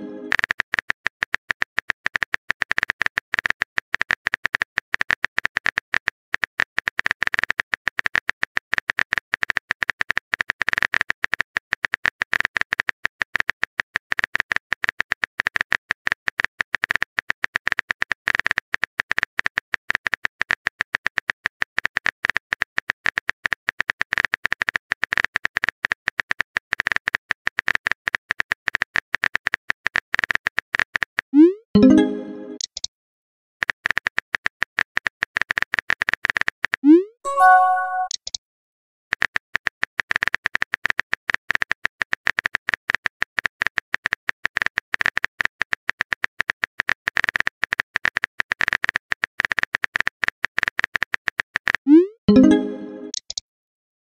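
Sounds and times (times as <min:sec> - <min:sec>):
rapid keyboard typing clicks: 0:00.3 - 0:13.6, 0:39.1 - 0:53.4.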